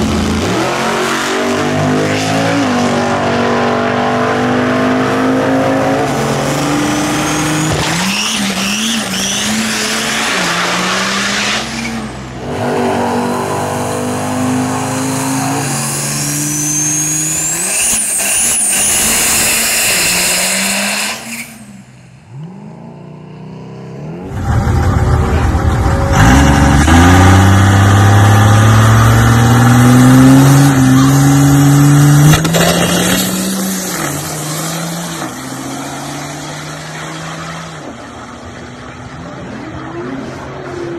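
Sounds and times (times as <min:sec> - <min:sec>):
diesel truck engine at full throttle: 0:00.0 - 0:20.3, 0:22.2 - 0:40.9
turbo whistle: 0:16.2 - 0:20.1.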